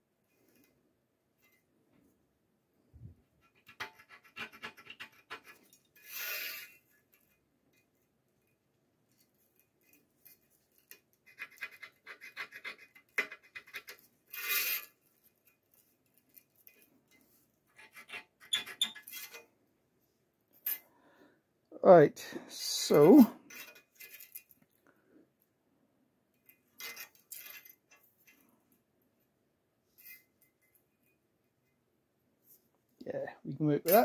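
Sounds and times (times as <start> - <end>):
scriber scratching steel plate: 3.4 - 6.8, 10.8 - 15.0, 17.7 - 19.5.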